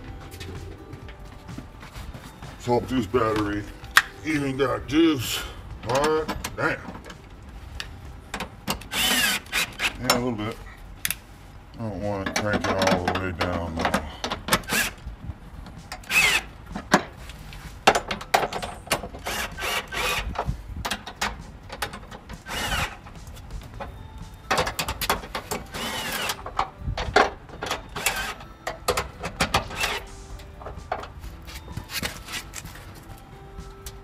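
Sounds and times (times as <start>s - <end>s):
cordless drill motor whine: 8.9s - 9.9s.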